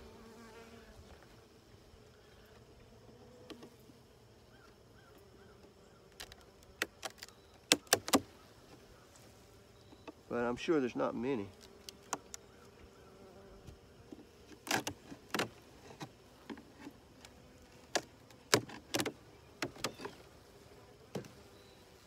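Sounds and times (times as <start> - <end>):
honey bees humming: 0.0 - 22.0
metal hive tool prying wooden frames: 6.2 - 8.2, 14.6 - 16.1, 17.9 - 20.2.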